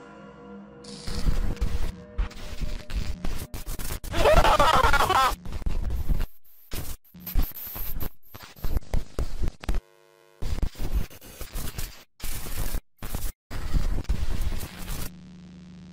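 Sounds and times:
glitchy stuttering static: 0.9 - 15.1.

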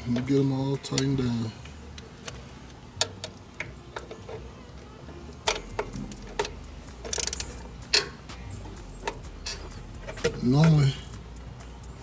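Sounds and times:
ratchet wrench clicking: 5.4 - 12.0.

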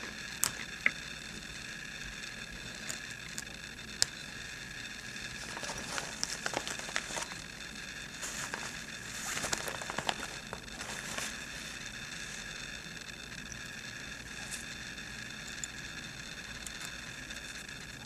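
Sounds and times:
fabric threads clicking and crackling: 5.0 - 13.6
fabric rustling: 5.4 - 7.4, 8.2 - 12.6.

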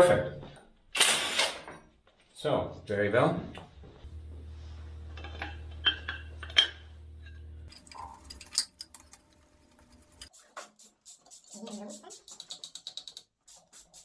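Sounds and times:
low hum: 3.7 - 10.3
metal tools clinking: 7.7 - 10.3.

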